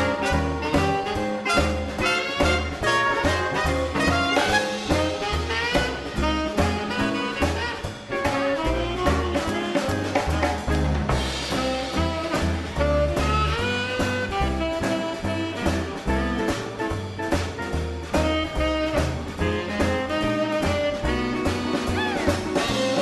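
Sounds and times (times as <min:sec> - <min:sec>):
drums: 0:00.0 - 0:23.0
swing band horns: 0:00.0 - 0:23.0
walking upright bass: 0:00.0 - 0:23.0.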